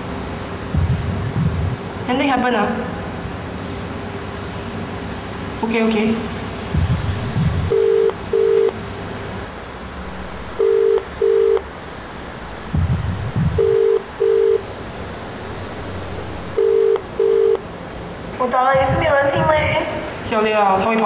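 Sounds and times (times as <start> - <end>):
telephone ringback tone: 7.7 - 8.8, 10.6 - 11.6, 13.6 - 14.6, 16.6 - 17.6.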